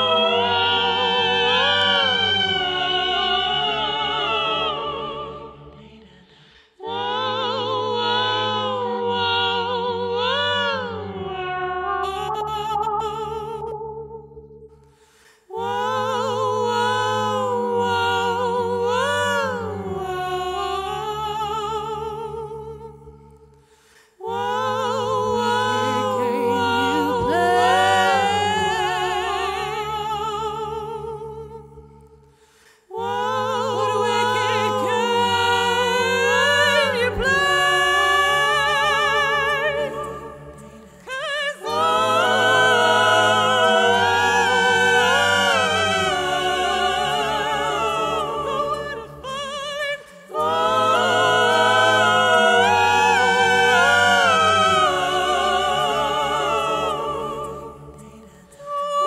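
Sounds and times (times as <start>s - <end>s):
woman singing wordless melody: 25.8s - 29.1s.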